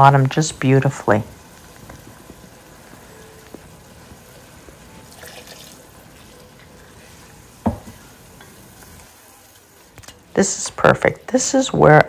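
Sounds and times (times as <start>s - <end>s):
wooden spoon stirring rice: 1.6s - 10.6s.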